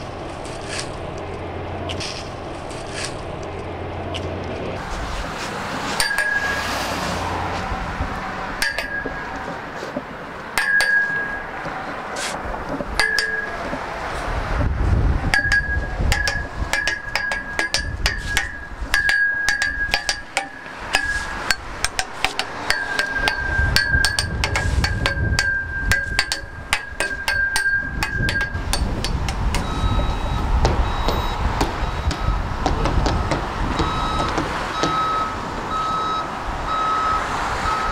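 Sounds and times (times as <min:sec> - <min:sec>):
low traffic rumble: 0:00.0 - 0:37.9
hammer striking metal: 0:05.9 - 0:06.8, 0:08.6 - 0:09.7, 0:10.5 - 0:12.1, 0:12.7 - 0:14.1, 0:15.3 - 0:35.3
truck reversing beeper: 0:06.0 - 0:07.4, 0:22.5 - 0:28.6, 0:29.5 - 0:37.9.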